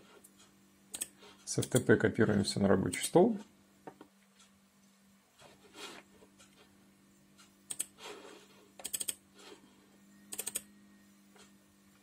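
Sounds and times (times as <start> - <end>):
faint steady hum: 0.0 - 12.0
computer mouse clicks: 0.9 - 1.9, 7.7 - 8.0, 8.8 - 9.2, 10.3 - 10.7.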